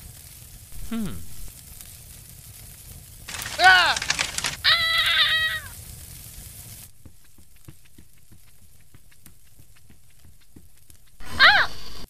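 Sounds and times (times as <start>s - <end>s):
fire crackling and popping: 0.0s - 11.3s
person exclaiming: 3.3s - 5.7s, 11.3s - 11.7s.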